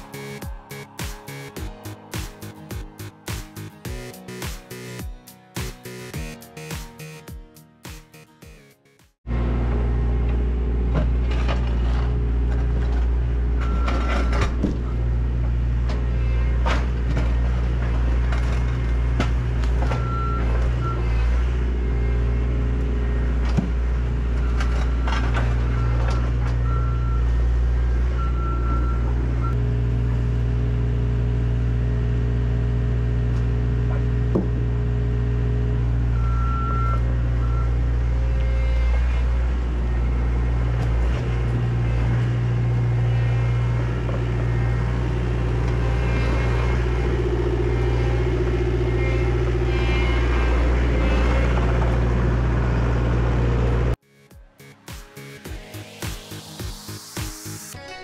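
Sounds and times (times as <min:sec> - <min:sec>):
diesel engine running: 0:00.0 - 0:07.3, 0:09.3 - 0:54.0
reversing beeps: 0:13.6 - 0:14.5, 0:19.9 - 0:21.1, 0:25.7 - 0:27.3, 0:28.2 - 0:29.6, 0:36.1 - 0:37.9.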